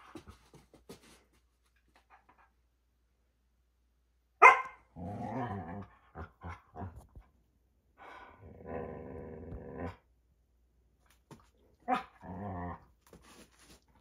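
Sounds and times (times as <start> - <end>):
dog barking: 4.4 - 4.9
dog growling: 4.9 - 7.0, 8.4 - 10.0.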